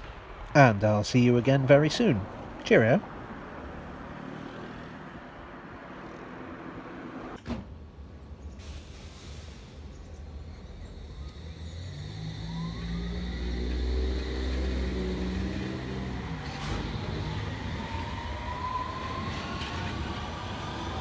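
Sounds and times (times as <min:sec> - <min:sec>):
electric train motor whine: 0:10.6 - 0:21.0.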